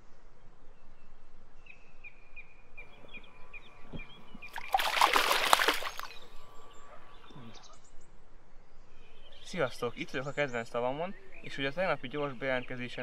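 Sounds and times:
fish splashing in water: 4.4s - 6.3s.

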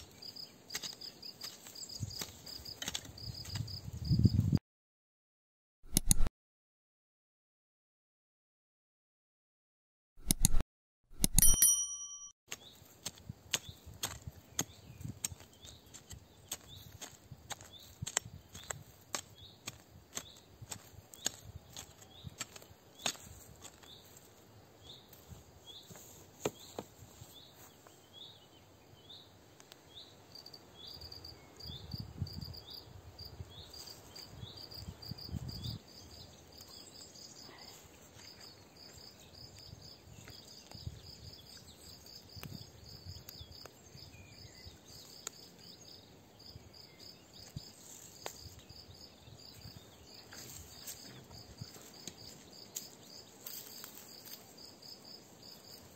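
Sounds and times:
hands rustling soil: 0.0s - 3.9s, 12.5s - 28.1s, 49.6s - 54.9s
hoe scraping in loose soil: 12.5s - 24.4s
cricket chirping: 30.3s - 55.9s.

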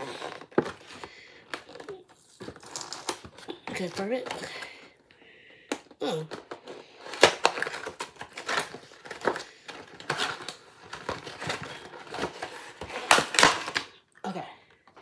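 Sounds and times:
packaging clicks and rustles: 0.0s - 14.1s
person vocal sound: 6.0s - 6.4s.

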